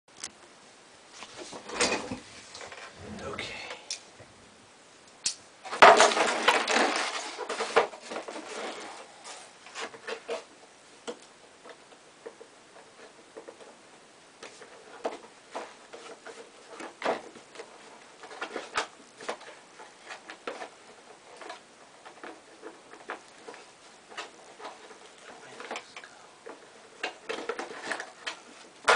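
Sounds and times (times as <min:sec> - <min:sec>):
cardboard and packaging rustling: 0:05.6 - 0:10.5, 0:14.4 - 0:28.9.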